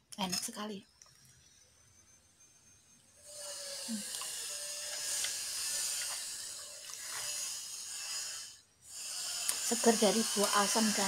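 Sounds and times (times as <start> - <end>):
steady hiss: 3.3 - 11.0.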